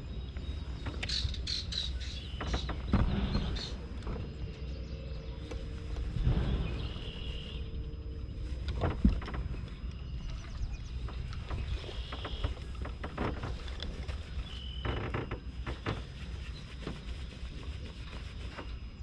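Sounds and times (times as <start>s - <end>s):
low wind rumble: 0.0s - 19.0s
light clicks and knocks: 0.3s - 6.6s, 8.5s - 17.2s.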